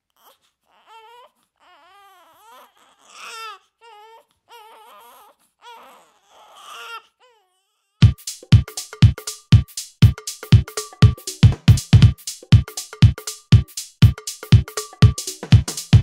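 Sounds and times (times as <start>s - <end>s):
baby crying: 0.1s - 8.0s
loud drum-machine beat: 8.0s - 16.0s.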